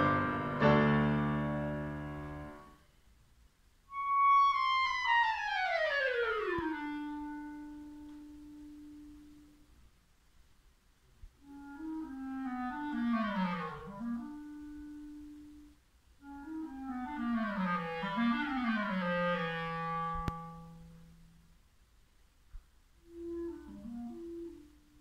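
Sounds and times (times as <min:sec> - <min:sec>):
clarinet playing: 0:03.9 - 0:09.7, 0:11.4 - 0:21.4, 0:23.0 - 0:25.0.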